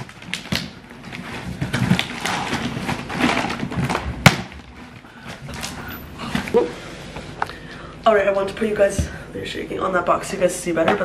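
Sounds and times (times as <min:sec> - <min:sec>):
cardboard box torn open: 0:00.0 - 0:04.8
cardboard flaps rustling: 0:00.0 - 0:06.6.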